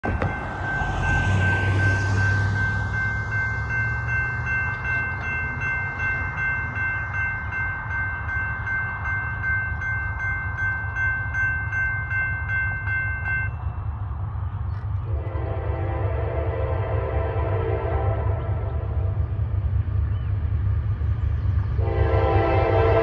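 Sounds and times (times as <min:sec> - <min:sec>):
railroad crossing bell ringing: 0:00.0 - 0:14.1
steady low rumble: 0:02.2 - 0:23.0.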